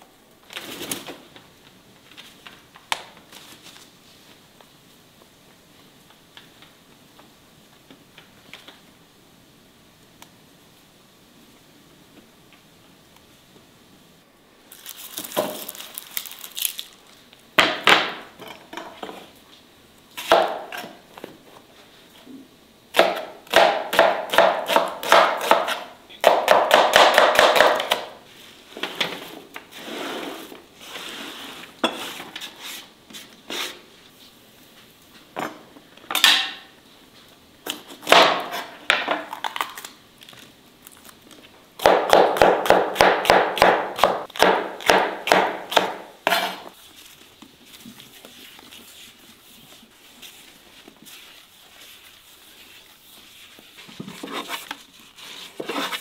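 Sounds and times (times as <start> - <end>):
knife chopping on wooden board: 23.0 - 28.1, 41.8 - 46.6.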